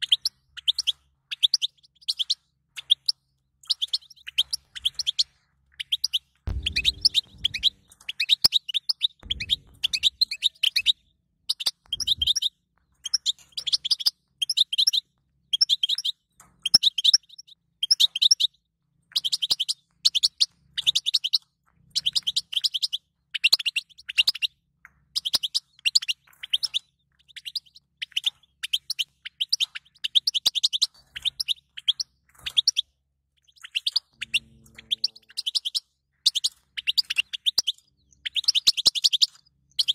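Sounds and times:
goldfinch twittering song: 0:00.0 - 0:39.9
low thumps: 0:06.5 - 0:08.0, 0:09.2 - 0:10.9.

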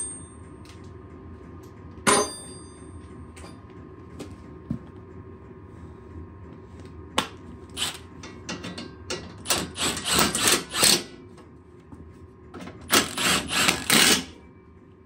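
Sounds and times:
impact driver hammering: 0:12.9 - 0:14.3.

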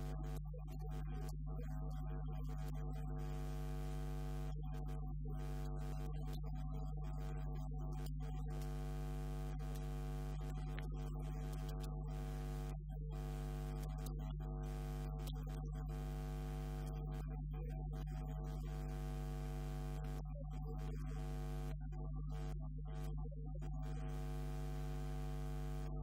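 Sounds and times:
electrical mains hum: 0:00.0 - 0:00.4.

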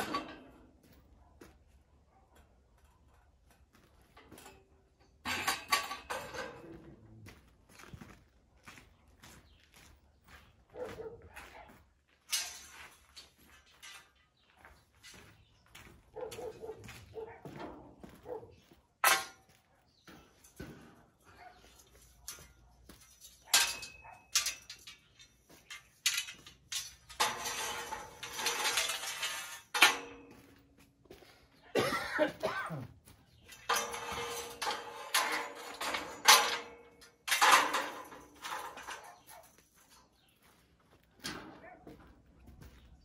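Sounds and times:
metal scraping: 0:00.0 - 0:00.8, 0:12.3 - 0:14.3, 0:20.4 - 0:30.6, 0:33.3 - 0:40.3
metal scaffolding parts clattering: 0:00.0 - 0:01.0, 0:03.5 - 0:07.0, 0:12.2 - 0:15.5, 0:17.3 - 0:30.8, 0:31.8 - 0:40.4, 0:41.2 - 0:41.7.

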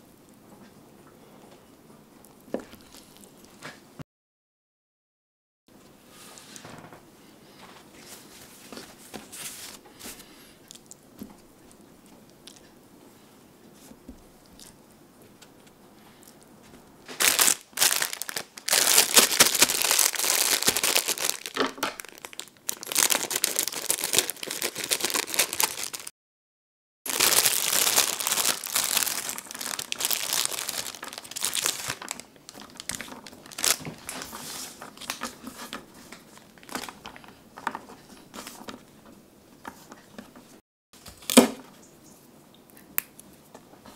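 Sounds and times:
plastic bag crinkling: 0:17.1 - 0:26.1, 0:27.1 - 0:37.8.

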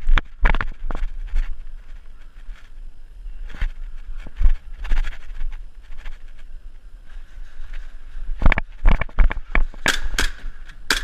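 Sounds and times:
airsoft pistol shots: 0:09.8 - 0:11.0.

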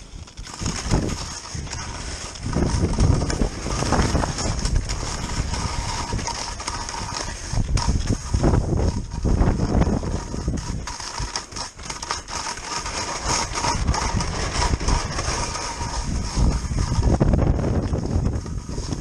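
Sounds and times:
skis scraping over icy snow: 0:00.0 - 0:19.0
wind rushing over microphone: 0:00.0 - 0:19.0.

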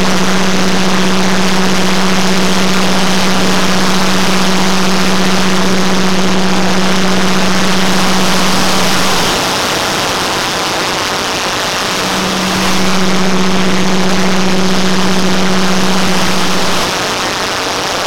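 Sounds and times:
steady low hum: 0:00.0 - 0:09.3, 0:11.4 - 0:17.0
loud rush of overlapping soundtracks: 0:00.0 - 0:17.4.

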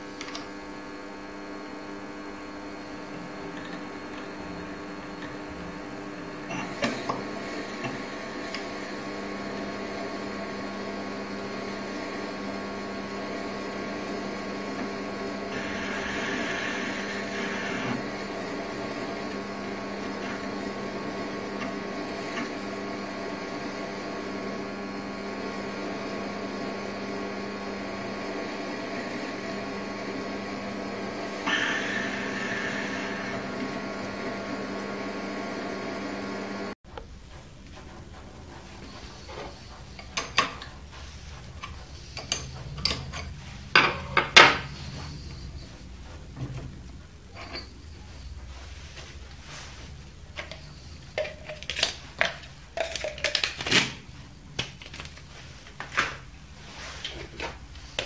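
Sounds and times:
lathe running: 0:00.2 - 0:36.8
drill boring into workpiece: 0:06.4 - 0:36.8.

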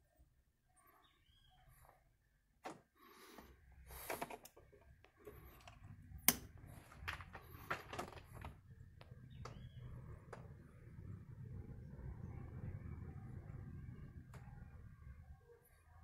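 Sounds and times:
faint low rumble: 0:04.7 - 0:16.0.

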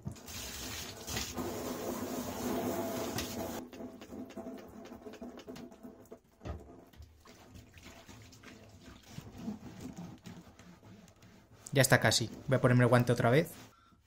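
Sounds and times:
hands scrubbing wet cardboard: 0:07.1 - 0:13.6.

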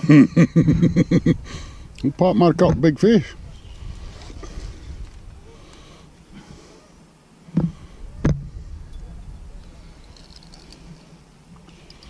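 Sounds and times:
short dull thumps: 0:07.5 - 0:08.5.

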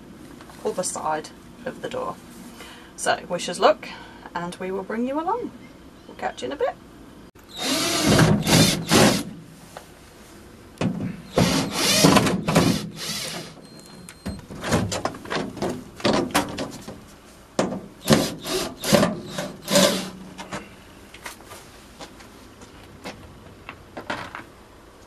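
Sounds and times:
cordless drill whirring: 0:07.5 - 0:09.3, 0:11.3 - 0:13.6.

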